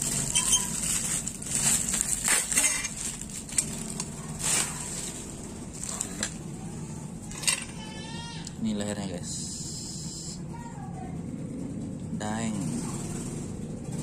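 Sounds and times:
sharp crackles: 0.0 - 6.4
plastic wrapping crinkling: 0.0 - 6.5.

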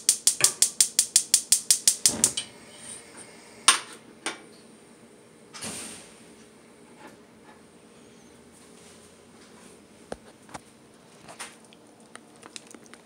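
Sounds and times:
gas stove igniter clicking: 0.0 - 2.6.

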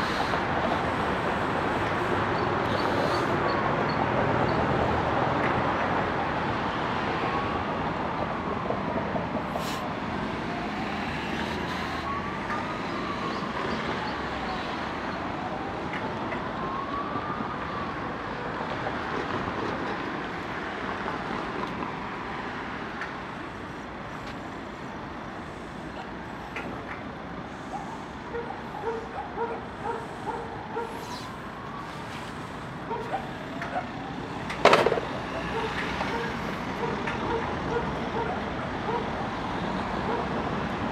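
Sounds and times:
city traffic noise: 0.0 - 40.9
distant siren wailing: 10.3 - 18.9, 27.6 - 40.9.

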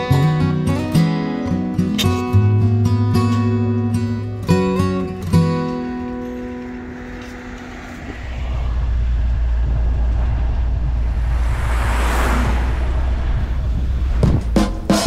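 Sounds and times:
plucked guitar notes: 0.0 - 7.3
van driving rumble: 0.0 - 15.0
passing car whoosh: 4.8 - 15.0.

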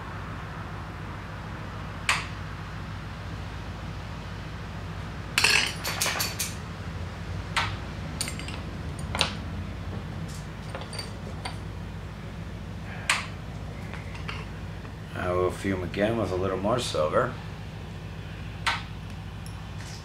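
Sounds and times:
low hum: 0.0 - 20.0
glass rods clinking: 5.4 - 6.6, 8.2 - 9.4, 10.3 - 11.6, 13.2 - 14.6.

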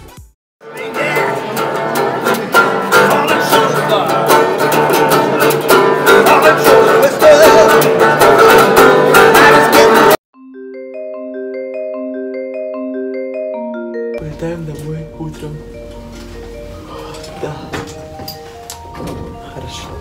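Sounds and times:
resonator guitar strumming: 0.6 - 10.2
soft bell-like notes: 10.4 - 20.0.

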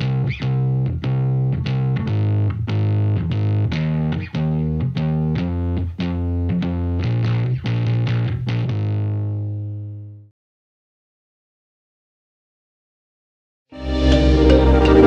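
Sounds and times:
distorted plucked guitar-like notes: 0.0 - 10.3, 13.8 - 15.0.

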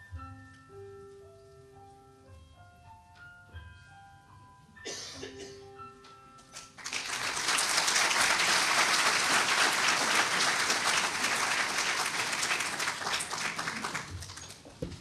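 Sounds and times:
audience applauding: 6.8 - 14.7.

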